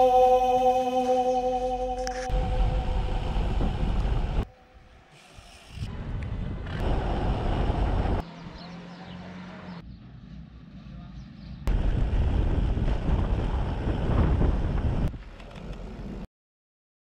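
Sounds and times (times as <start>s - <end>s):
wind buffeting microphone: 2.3s - 4.4s, 11.7s - 15.4s
outdoor background noise: 3.2s - 16.3s.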